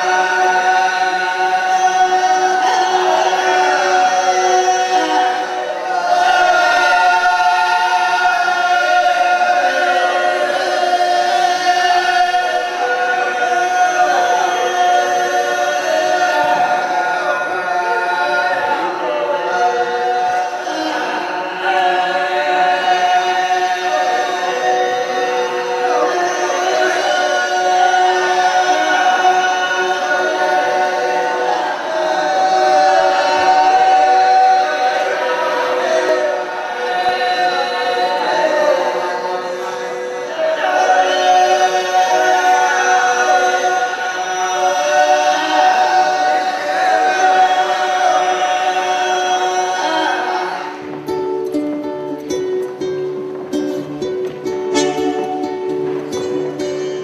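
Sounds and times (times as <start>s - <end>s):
men's chorus singing: 0.0s - 51.4s
plucked string instrument: 47.8s - 57.0s.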